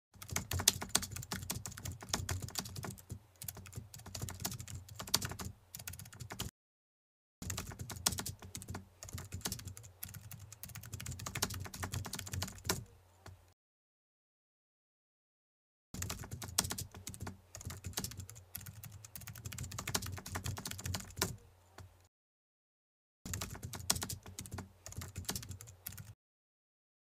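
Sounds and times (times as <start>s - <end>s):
keyboard typing: 0.2s - 6.5s, 7.4s - 13.4s, 16.0s - 21.4s, 23.3s - 26.2s.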